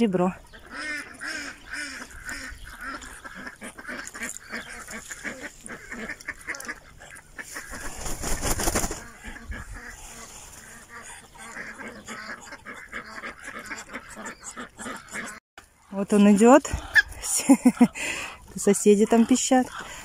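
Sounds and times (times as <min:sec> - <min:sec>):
ducks calling: 0:00.3 - 0:20.0
duck wings flapping: 0:07.4 - 0:11.7.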